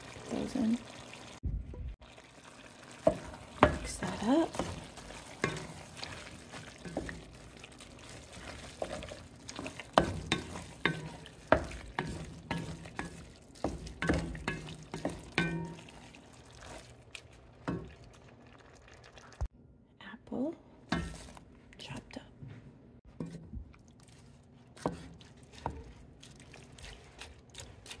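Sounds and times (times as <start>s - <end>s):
faint sizzle: 0.0s - 19.5s
wooden spatula knocking on pot: 3.0s - 16.0s.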